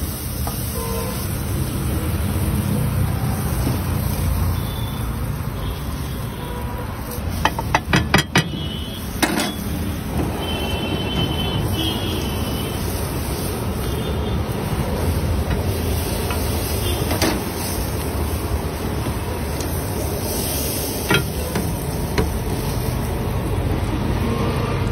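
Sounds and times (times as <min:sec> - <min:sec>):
street stall rumble: 0:00.0 - 0:24.9
metal spatula knocking on griddle: 0:07.4 - 0:09.6.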